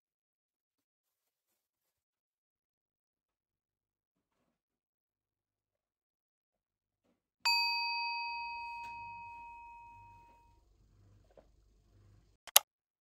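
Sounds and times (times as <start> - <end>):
bell-like ding: 7.5 - 10.5.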